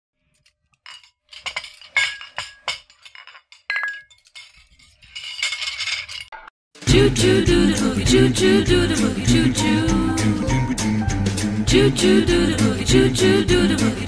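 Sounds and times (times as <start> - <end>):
rattling clatter: 0.7 - 6.3
hard objects clinking on glass: 0.8 - 6.3.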